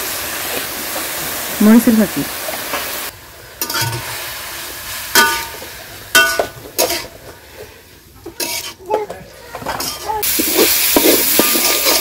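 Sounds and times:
vegetables sizzling in oil: 0.0 - 12.0
utensil clinking on pan: 5.2 - 7.1.

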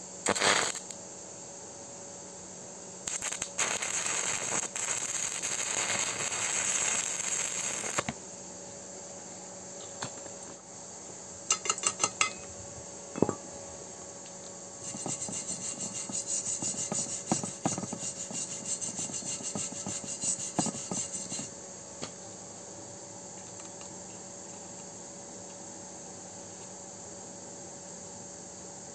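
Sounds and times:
welding arc crackling: 0.2 - 1.0, 3.0 - 8.1
wire brush scrubbing metal: 14.8 - 21.5.

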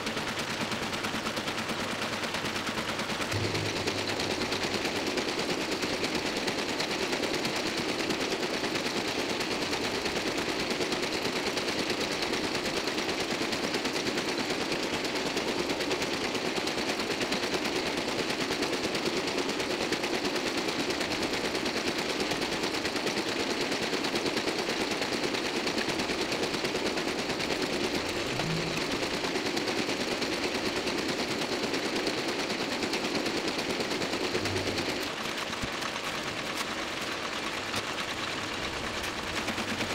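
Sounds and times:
printing press clattering: 3.2 - 7.9, 27.6 - 29.5.

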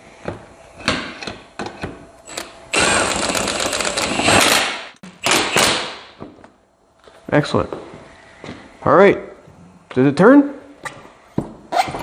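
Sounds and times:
impact wrench rattling: 2.3 - 6.0.

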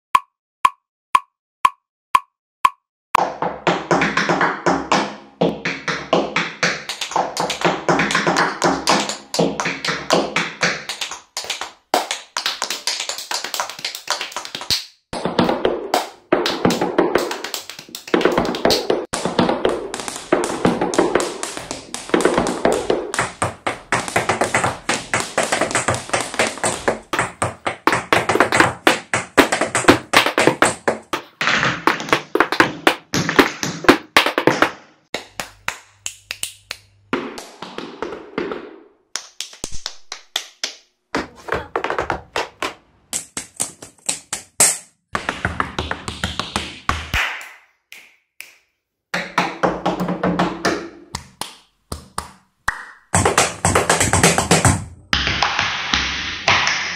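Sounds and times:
tap shoes striking hard floor: 3.2 - 35.4, 37.2 - 47.2, 53.1 - 54.9.

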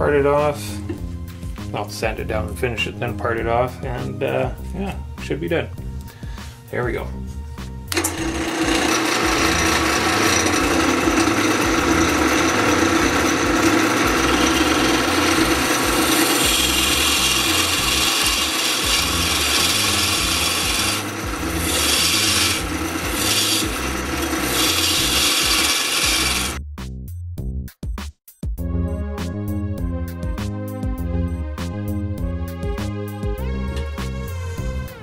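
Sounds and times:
steady lathe hum: 7.9 - 26.6
wood lathe scraping hiss: 7.9 - 26.6.

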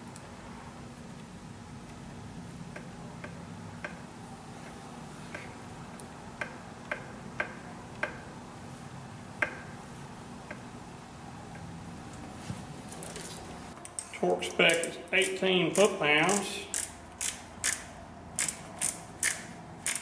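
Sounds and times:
faint steady hum: 0.0 - 20.0
sharp metallic tool clicks: 14.7 - 20.0.

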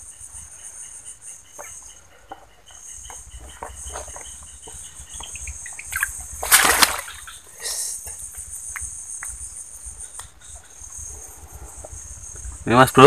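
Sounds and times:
insects chirring: 0.0 - 13.0
fish splashing in water: 3.9 - 7.4.

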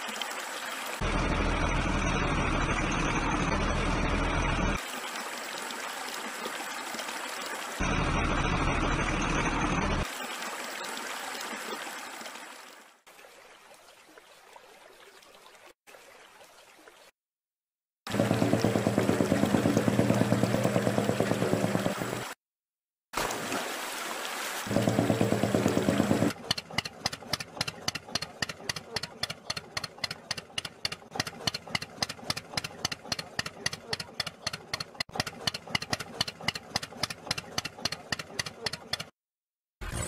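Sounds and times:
toy tractor motor pulsing drone: 1.0 - 4.8.

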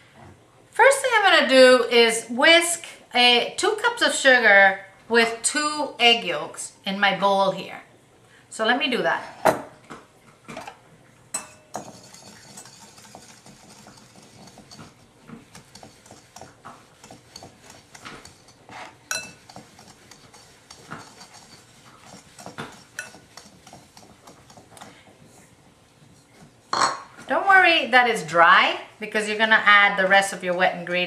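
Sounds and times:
whisk clinking on bowl: 11.3 - 25.0
whisk beating in a ceramic bowl: 11.4 - 26.7.

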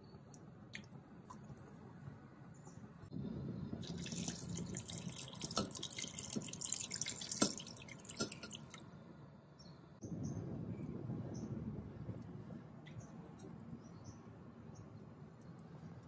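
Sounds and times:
water pouring into a pot: 3.8 - 8.9.

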